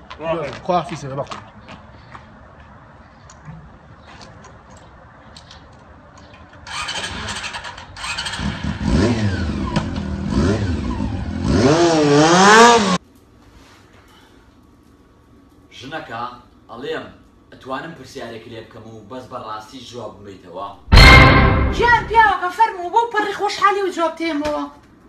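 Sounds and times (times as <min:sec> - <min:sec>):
motorcycle engine revving: 0:06.7 - 0:13.0.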